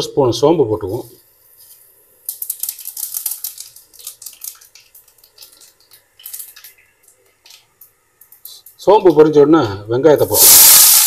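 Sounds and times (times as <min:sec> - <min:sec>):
seeds crackling in hot oil: 0:01.8 - 0:08.9, 0:10.3 - 0:11.0.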